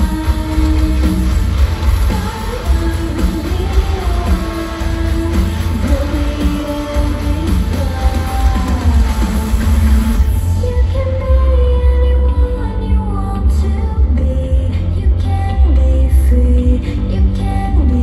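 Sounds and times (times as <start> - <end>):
live pop-rock band playing: 0.0 - 11.5.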